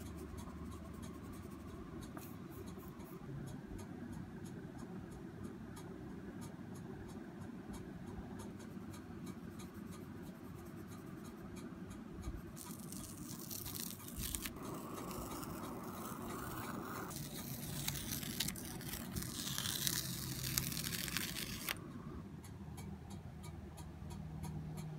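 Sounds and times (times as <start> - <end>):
faint regular ticking: 0.0 - 24.9
steady low hum: 0.0 - 24.9
paper rustling and scraping: 12.6 - 21.8.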